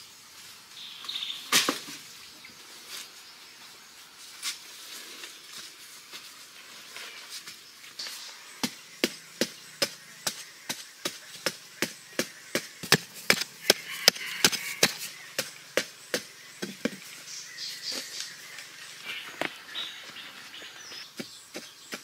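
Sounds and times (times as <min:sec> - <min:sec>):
digging tool striking earth: 0:08.0 - 0:17.1.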